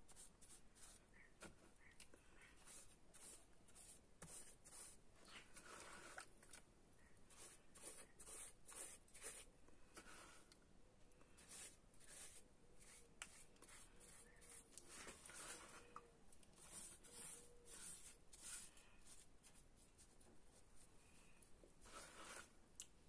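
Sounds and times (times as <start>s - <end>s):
paintbrush scrubbing wet cement: 2.6s - 6.3s, 7.3s - 10.4s, 11.4s - 16.0s, 16.6s - 19.9s, 21.8s - 22.5s.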